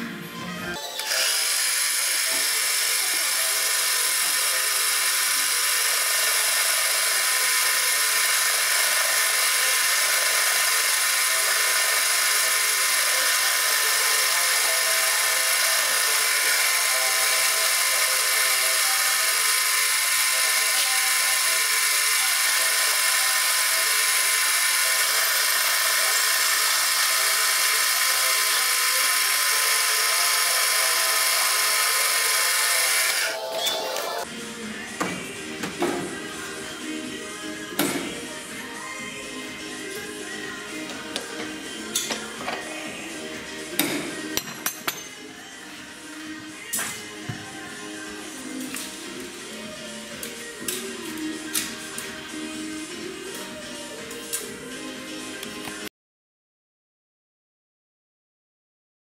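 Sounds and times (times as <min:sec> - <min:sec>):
metal lathe whine: 0:00.8 - 0:34.3.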